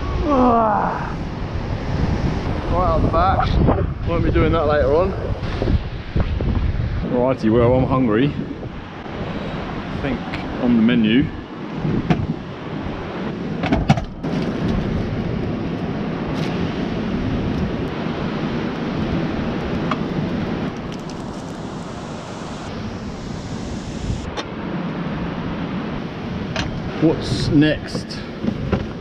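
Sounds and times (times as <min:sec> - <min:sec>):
rough surf rushing: 0:00.0 - 0:29.0
wind buffeting microphone: 0:00.0 - 0:29.0.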